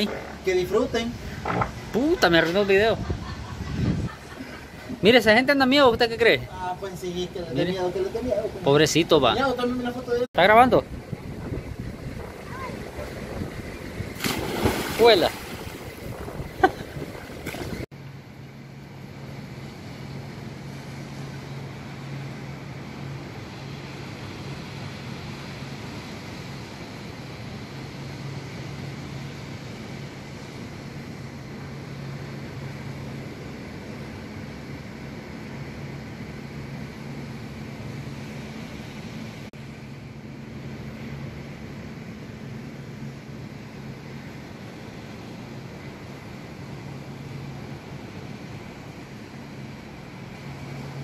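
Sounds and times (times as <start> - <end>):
constant rushing noise: 0.0 - 17.9
low machine hum: 0.0 - 51.0.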